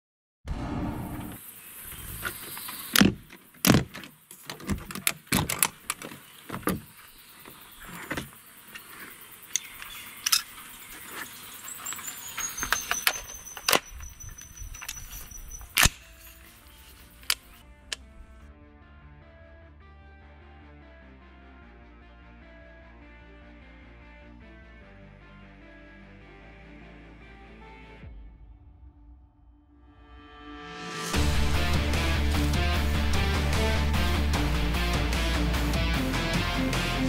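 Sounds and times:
case latches snapping open: 3.0s - 6.9s, 9.5s - 10.5s, 12.5s - 16.4s
rifle handling knocks and clicks: 3.0s - 6.9s.

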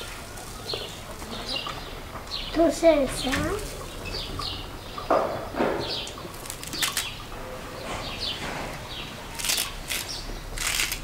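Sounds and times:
bird chirps: 0.6s - 9.1s.

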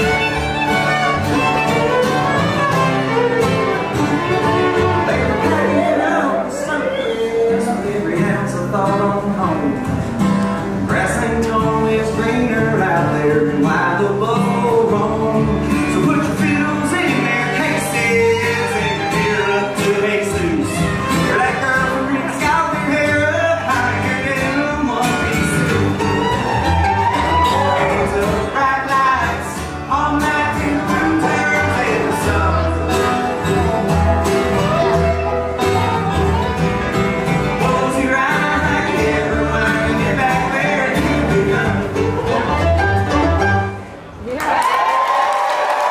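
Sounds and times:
banjo: 0.0s - 6.6s, 7.6s - 44.0s
upright bass plucking: 0.0s - 6.7s, 7.6s - 44.0s
fiddle: 0.0s - 7.8s, 14.7s - 44.0s
mandolin: 0.0s - 44.2s
resonator guitar: 0.0s - 44.2s
acoustic guitar: 0.0s - 44.3s
bluegrass band playing: 0.0s - 44.3s
man singing: 4.6s - 10.1s, 10.8s - 26.3s, 27.3s - 35.1s, 37.2s - 42.8s.

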